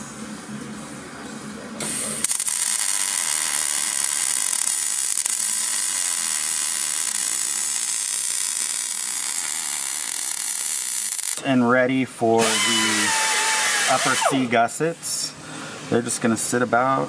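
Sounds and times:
welder arc crackling: 1.8 - 11.4, 12.4 - 14.6.

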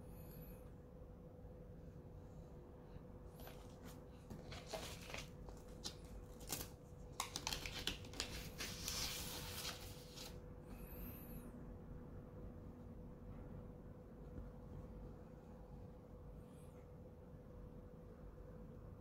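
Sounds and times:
faint steady hum: 0.0 - 19.0
paper sleeves rustling: 3.4 - 10.4.

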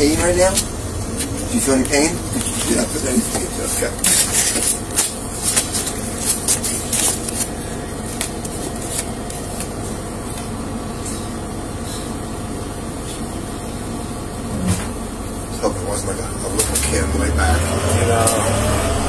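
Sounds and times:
steady vehicle interior hum: 0.0 - 19.0
papers rustling: 0.6 - 11.2.

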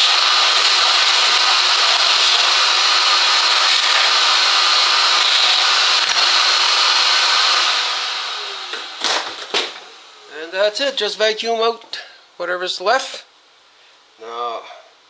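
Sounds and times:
shop vacuum whining: 0.0 - 10.3.

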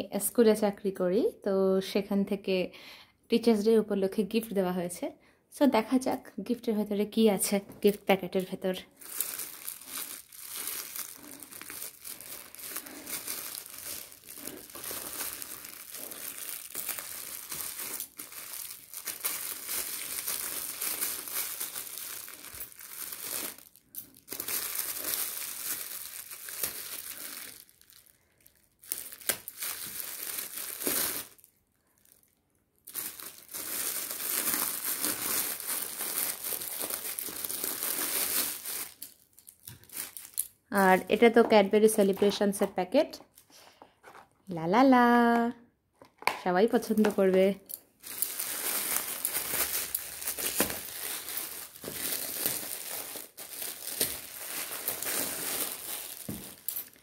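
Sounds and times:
metallic foil crinkling: 7.8 - 41.0, 46.8 - 57.0.

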